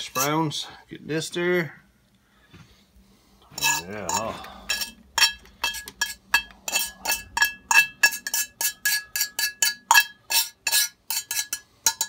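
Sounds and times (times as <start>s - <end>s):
fork scraping cast iron skillet: 0.0s - 0.4s, 3.5s - 12.0s.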